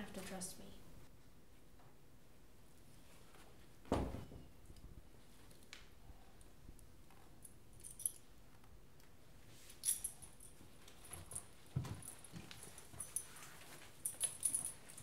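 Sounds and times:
leash clip and tags jingling: 0:09.8 - 0:15.0.

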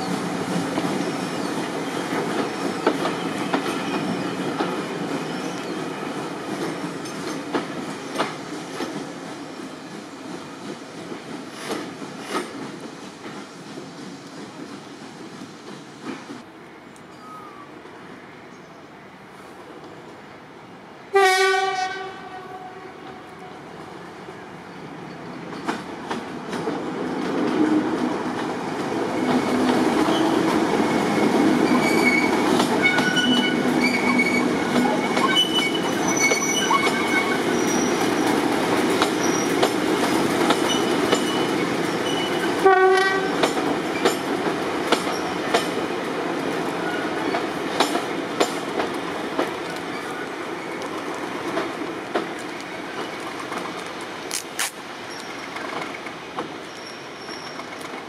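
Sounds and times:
train horn blast: 0:21.1 - 0:23.6, 0:42.6 - 0:43.4
wheels clicking over rail joints: 0:25.5 - 0:58.0
wheel squeals: 0:31.1 - 0:38.3, 0:56.6 - 0:57.8.

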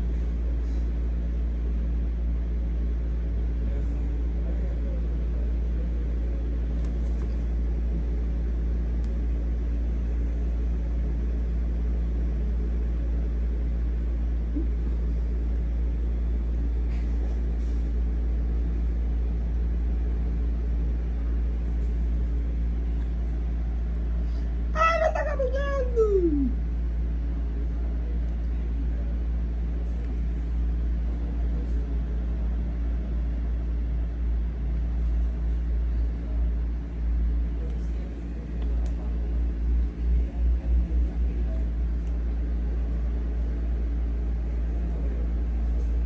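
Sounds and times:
machine rumble and hum: 0:00.0 - 0:46.0.

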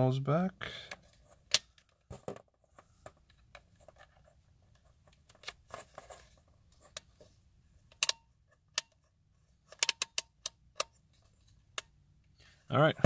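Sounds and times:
faint plastic clicks and scrapes: 0:00.9 - 0:07.4.

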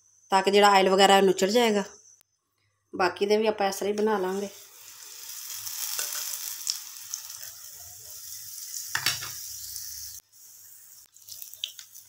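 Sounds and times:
batter frying in hot oil: 0:04.2 - 0:12.0.

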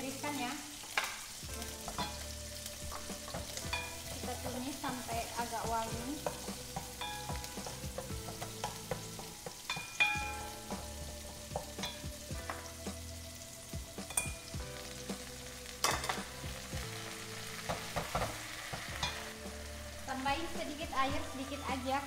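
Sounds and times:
aromatics sizzling in hot oil: 0:00.0 - 0:22.0
wooden spatula stirring in pot: 0:01.5 - 0:13.0.

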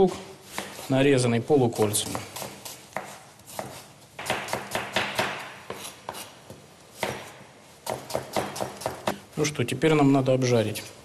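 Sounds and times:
knife slicing onion on board: 0:01.8 - 0:06.4, 0:07.0 - 0:09.1.

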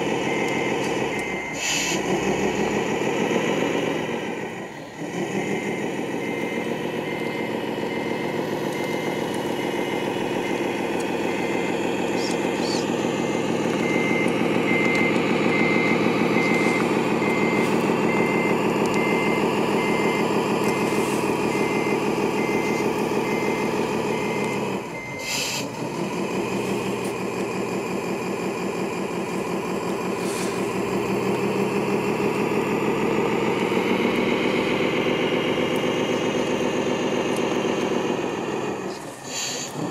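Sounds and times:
reversing beeper: 0:00.0 - 0:39.9
simulated diesel engine running: 0:00.0 - 0:39.9.

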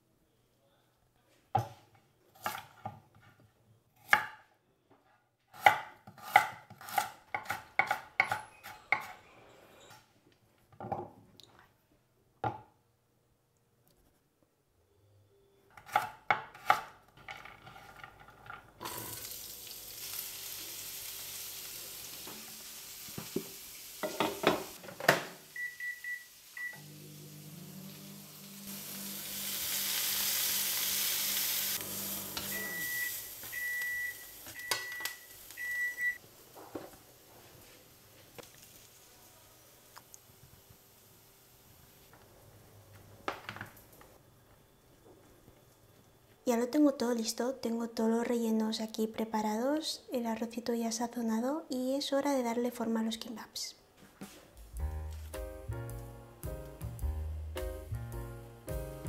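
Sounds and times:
knife chopping on cutting board: 0:05.5 - 0:08.4
vegetables sizzling in frying pan: 0:18.8 - 0:42.2
induction hob humming: 0:25.6 - 0:36.1
short high beeps: 0:32.5 - 0:36.2.

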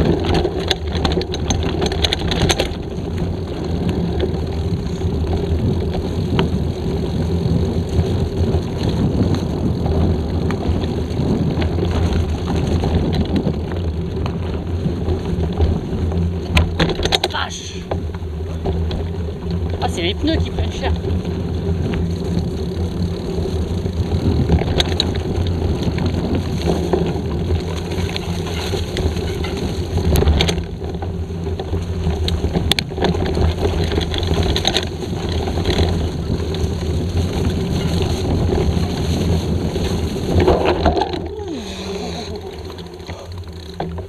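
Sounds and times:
bike knocking and rattling: 0:00.0 - 0:44.0
bike tyres rolling over dirt: 0:00.0 - 0:44.0
wind on microphone: 0:31.6 - 0:44.0.

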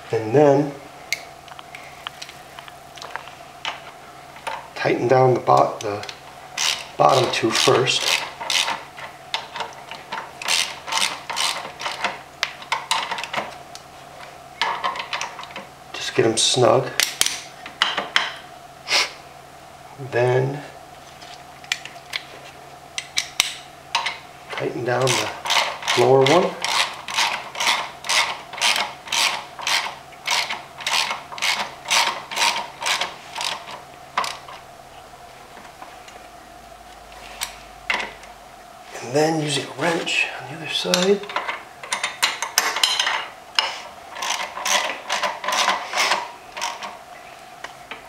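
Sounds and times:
socket ratchet clicking: 0:07.6 - 0:08.8, 0:10.4 - 0:12.1.

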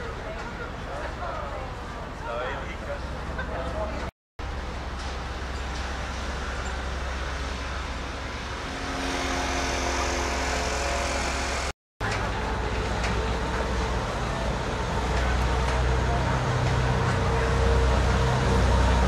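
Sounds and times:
outdoor noise: 0:00.0 - 0:19.0
deep hum: 0:04.4 - 0:11.7
steady tone: 0:04.4 - 0:11.7
motor rumble: 0:04.4 - 0:19.0.

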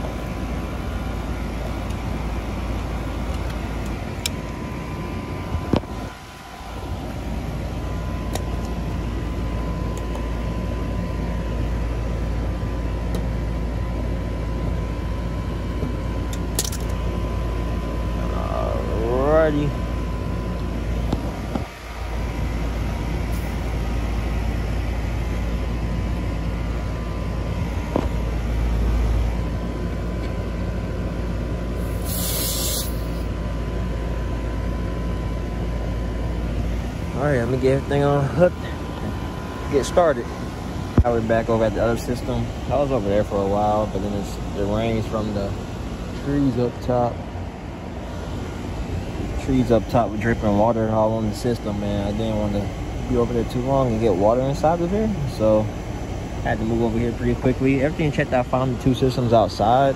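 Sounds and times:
air conditioner unit droning: 0:00.0 - 0:59.9
short sharp refrigerant hiss: 0:21.2 - 0:24.1, 0:31.6 - 0:33.4.

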